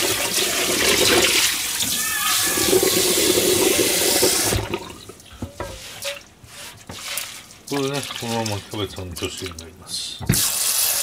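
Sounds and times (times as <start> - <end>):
tap water drumming in metal saucepan: 2.8 - 10.5.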